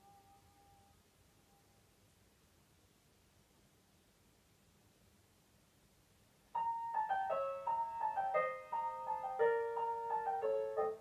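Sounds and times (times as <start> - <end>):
piano melody: 6.6 - 11.0.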